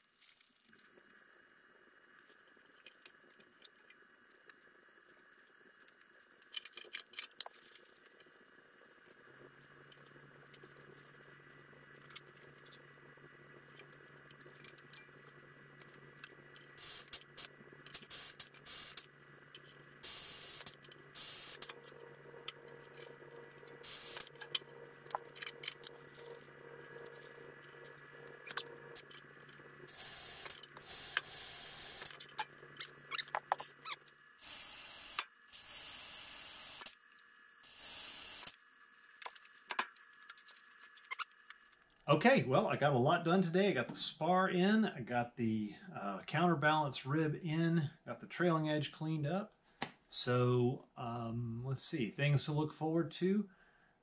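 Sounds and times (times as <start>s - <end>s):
pneumatic riveting tool hiss: 16.8s - 19.1s, 20.0s - 21.7s, 23.8s - 24.4s, 29.9s - 32.2s, 34.4s - 37.0s, 37.6s - 38.6s.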